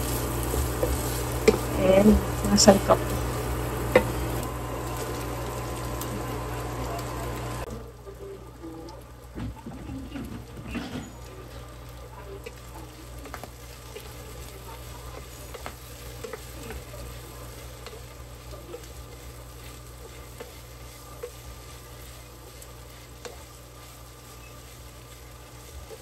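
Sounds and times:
wooden spatula scraping a pan: 0.0 - 4.3, 13.2 - 26.0
steady low hum: 0.0 - 9.3
food sizzling in a frying pan: 0.0 - 26.0.

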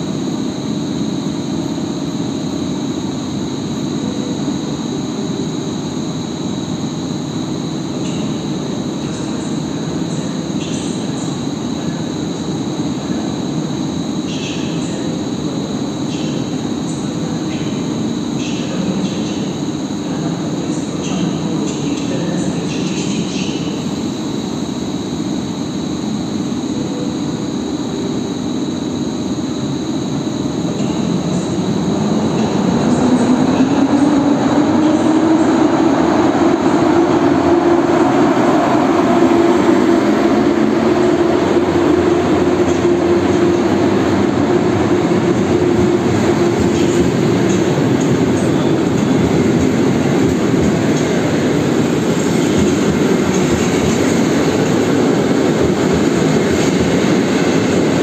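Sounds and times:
electric locomotive hum: 0.0 - 58.0
train coaches rolling past: 30.6 - 58.0.

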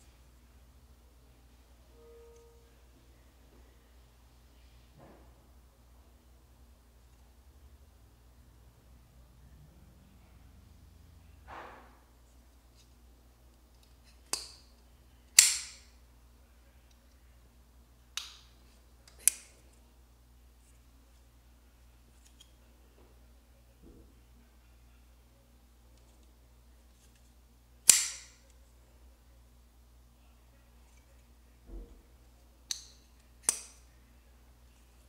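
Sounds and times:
faint low hum: 0.0 - 35.0
folding knife clicking open and shut: 27.9 - 28.3, 32.7 - 33.8.

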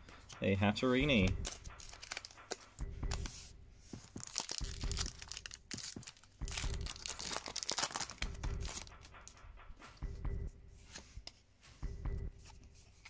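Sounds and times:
soft low pulse: 1.0 - 5.5, 6.4 - 7.2, 8.2 - 12.7
foil pack crinkling and tearing: 1.8 - 2.4, 4.2 - 8.8.

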